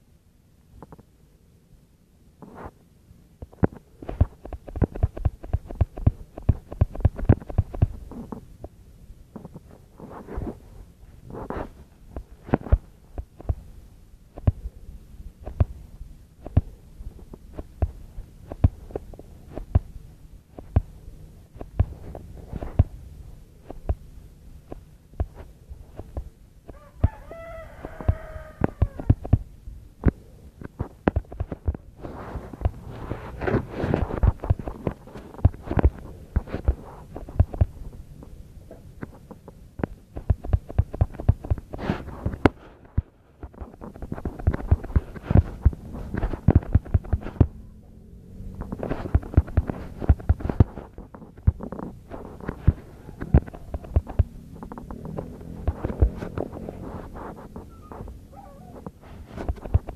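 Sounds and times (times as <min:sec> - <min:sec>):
knocks and taps of craft materials: 0:03.4 - 0:08.0.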